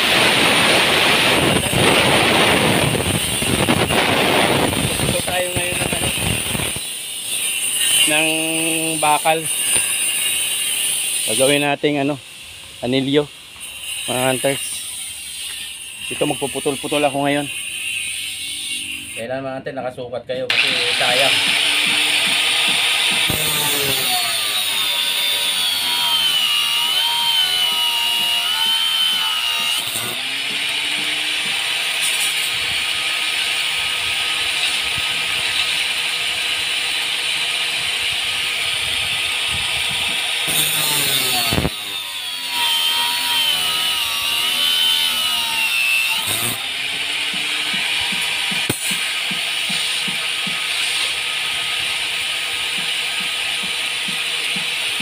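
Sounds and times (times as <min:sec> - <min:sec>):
angle grinder cutting steel: 0:00.0 - 0:19.3, 0:20.5 - 0:55.0.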